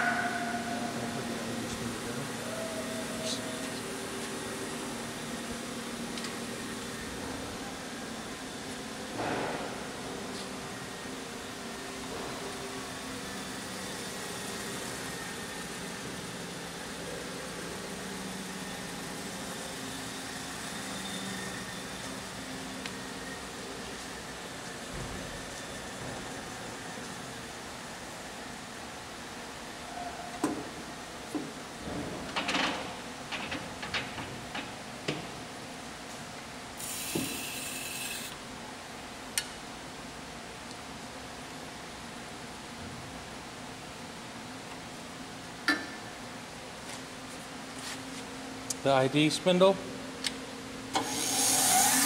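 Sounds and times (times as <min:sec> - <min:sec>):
steady machine hum: 0:00.0 - 0:52.0
grinder machine humming: 0:36.8 - 0:38.4, 0:51.0 - 0:52.0.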